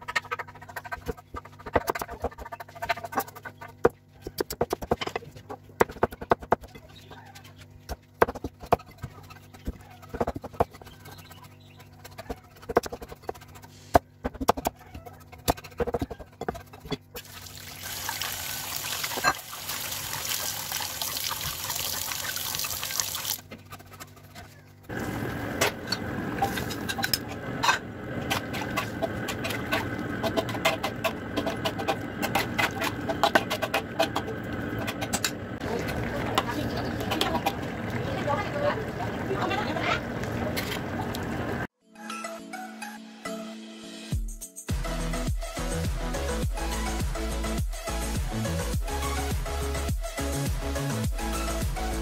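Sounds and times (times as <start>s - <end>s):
wok simmering and bubbling: 17.2s - 23.3s, 24.9s - 41.7s
running water splashing: 17.2s - 23.4s
metal spatula clicks and scrapes: 25.9s - 35.4s.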